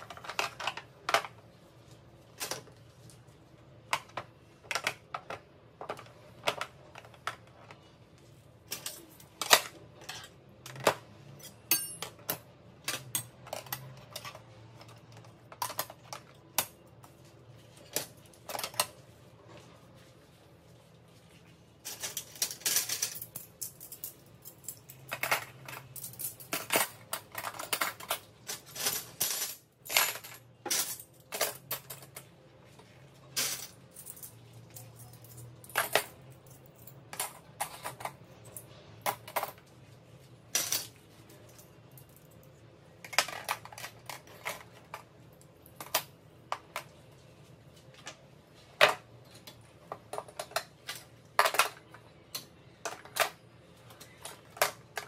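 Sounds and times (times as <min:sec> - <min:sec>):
cutlery clinking into tray: 0:08.7 - 0:12.4.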